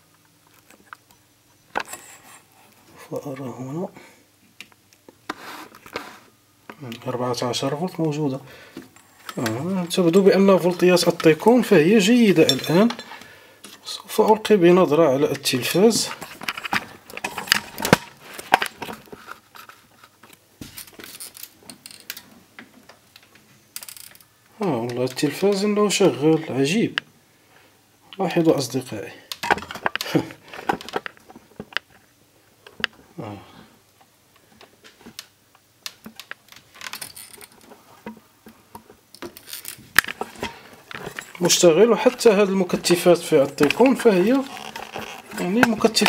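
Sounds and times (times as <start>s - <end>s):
faint handling clicks and knocks: 15.3s - 25.7s, 29.3s - 33.0s, 33.9s - 46.0s.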